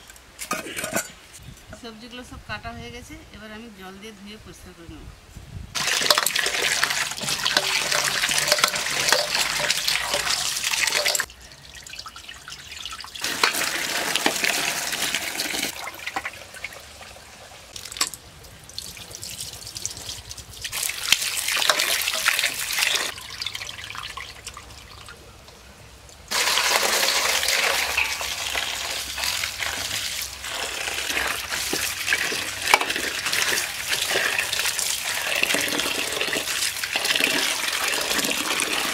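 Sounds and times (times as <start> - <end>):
hand rinsing vegetables: 5.8 - 11.3, 18.7 - 25.1, 26.3 - 38.9
water pouring into steel bowl: 5.8 - 18.1, 18.7 - 25.2, 26.3 - 38.9.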